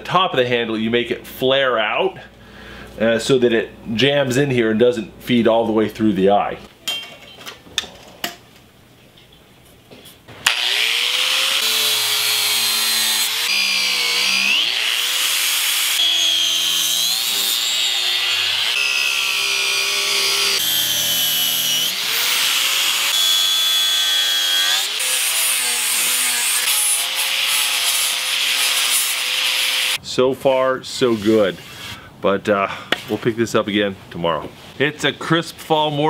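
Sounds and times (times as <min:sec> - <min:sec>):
angle grinder grinding wood: 0:10.4 - 0:30.0.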